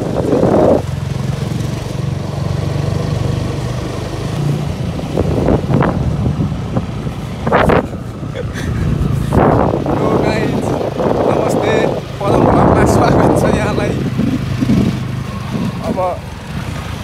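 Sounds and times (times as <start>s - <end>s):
motorcycle engine running: 0.0s - 17.0s
voice: 9.9s - 14.0s, 15.7s - 16.2s.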